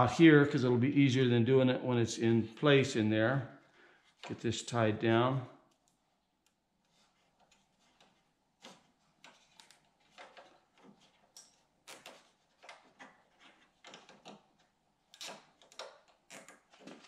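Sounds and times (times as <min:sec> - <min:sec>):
cable tie clicks and rustles: 0:05.6 - 0:17.0.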